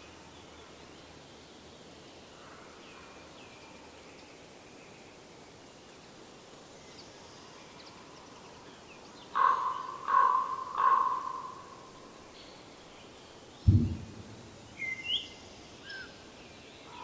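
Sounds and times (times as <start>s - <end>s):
forest background: 0.0s - 17.0s
bird calling loudly: 9.4s - 11.6s
faint high bird chirps: 13.6s - 16.1s.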